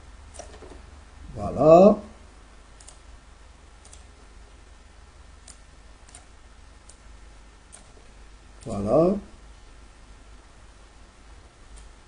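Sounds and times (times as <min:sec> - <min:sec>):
low steady hum: 0:00.0 - 0:12.0
faint computer mouse clicks: 0:03.8 - 0:04.1, 0:05.4 - 0:07.0.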